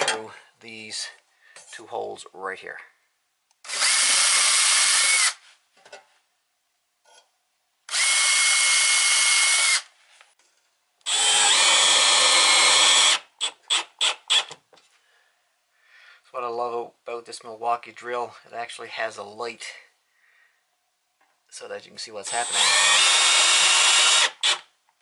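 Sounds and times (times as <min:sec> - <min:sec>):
cordless drill driving screws: 0:03.6 - 0:05.4, 0:07.9 - 0:09.9, 0:11.0 - 0:14.6, 0:22.3 - 0:24.7
drill trigger pulses: 0:03.6 - 0:05.4, 0:07.9 - 0:09.8, 0:11.1 - 0:14.6, 0:22.3 - 0:24.7.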